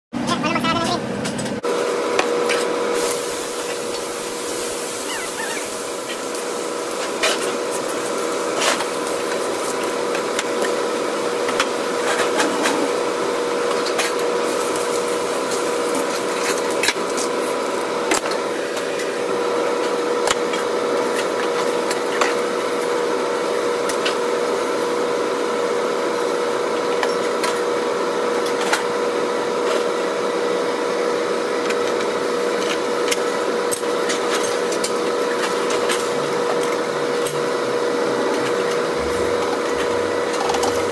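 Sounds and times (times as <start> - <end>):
water sizzling on hot griddle: 3.0 - 11.6, 14.4 - 17.7
steady hum: 35.9 - 40.9.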